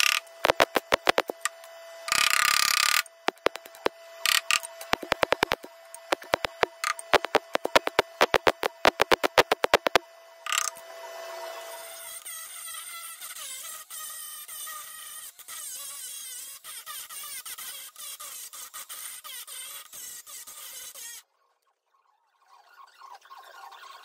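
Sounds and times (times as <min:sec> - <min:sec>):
angle grinder grinding: 0:00.0 - 0:10.8
welder crackling: 0:00.0 - 0:10.8.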